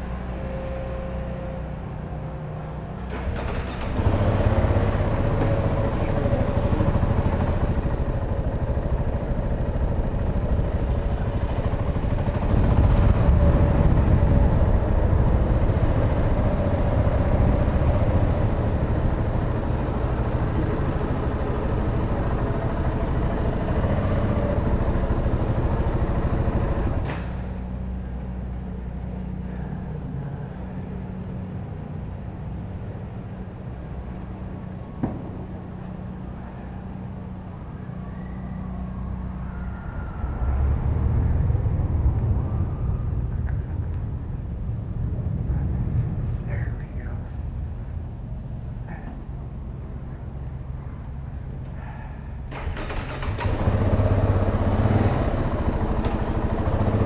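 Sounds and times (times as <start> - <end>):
motorcycle engine: 2.8 - 29.1, 52.4 - 57.0.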